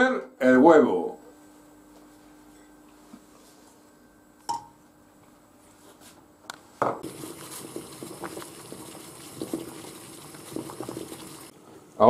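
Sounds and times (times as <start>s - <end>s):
water boiling and bubbling: 7.0s - 11.6s.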